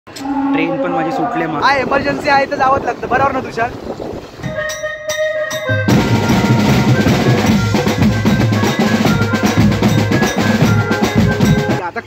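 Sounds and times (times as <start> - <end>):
drum troupe playing fast rhythm: 5.8 - 12.0.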